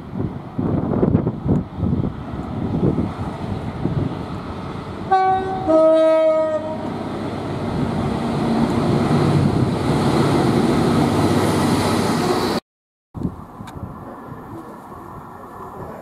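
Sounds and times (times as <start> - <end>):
two-tone train horn: 5.1 - 6.9.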